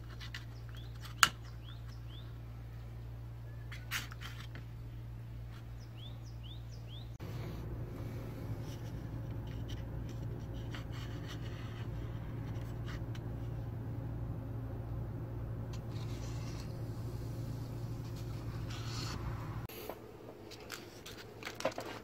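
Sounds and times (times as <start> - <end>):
bird chirping: 0.4 - 3.9, 5.5 - 7.2
steady low hum: 1.6 - 20.4
blade scraping in a jar: 15.7 - 17.0.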